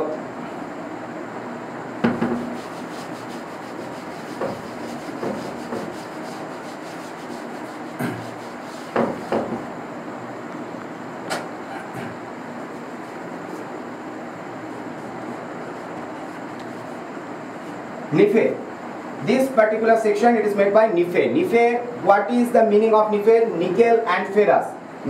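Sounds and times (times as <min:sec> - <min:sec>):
steady background hiss: 0:00.0 - 0:25.0
duster rubbing whiteboard: 0:02.1 - 0:09.7, 0:12.6 - 0:13.7, 0:14.6 - 0:17.8.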